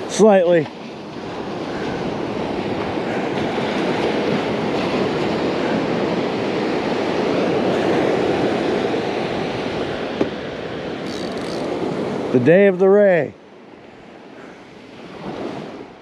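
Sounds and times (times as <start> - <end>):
wind on microphone: 0.0 - 12.4
surf washing up beach: 0.0 - 16.0.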